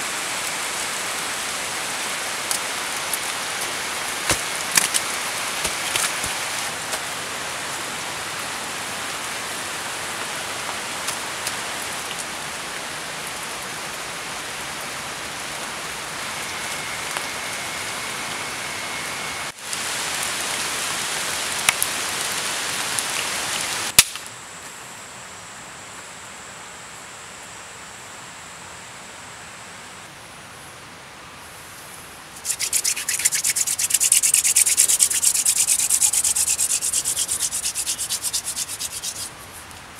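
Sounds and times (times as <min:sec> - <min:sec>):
rain hissing: 0:00.0 - 0:24.0, 0:31.5 - 0:39.9
hand drill grinding on wood: 0:32.4 - 0:39.4.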